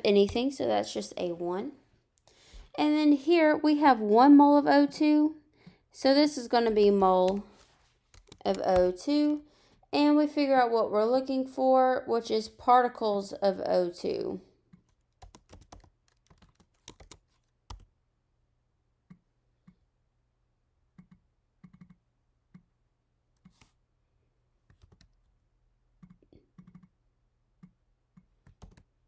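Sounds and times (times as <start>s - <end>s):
faint keyboard typing: 0.1s - 0.6s, 6.6s - 9.4s, 14.7s - 17.9s, 21.0s - 22.7s, 23.3s - 23.8s, 24.6s - 25.3s, 26.0s - 27.0s, 27.6s - 29.0s.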